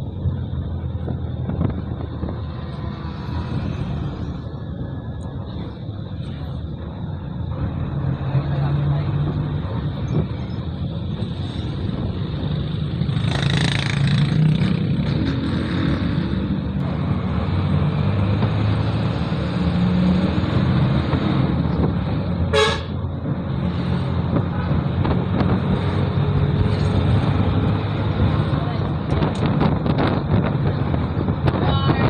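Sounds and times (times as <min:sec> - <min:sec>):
road traffic: 0:00.0 - 0:32.0
horn toot: 0:22.5 - 0:23.0.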